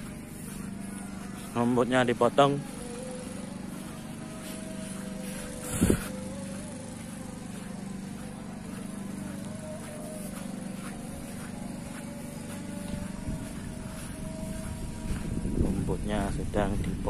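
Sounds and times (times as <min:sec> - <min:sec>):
distant lawn mower engine: 0:00.0 - 0:17.0.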